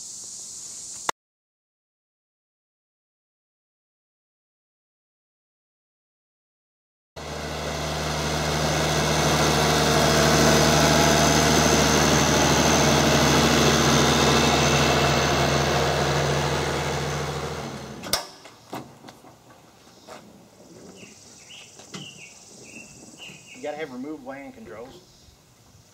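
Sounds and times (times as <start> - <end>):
tractor engine idling: 7.2 - 18.6.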